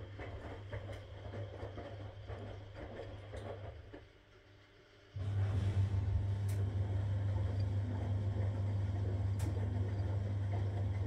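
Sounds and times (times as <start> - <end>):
low motor hum: 5.2 - 11.0
water sloshing in washing machine: 5.2 - 11.0.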